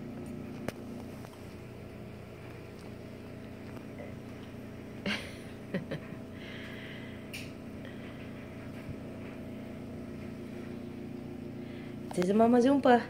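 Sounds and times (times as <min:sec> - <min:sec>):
cats scuffling on rug: 0:08.0 - 0:11.0.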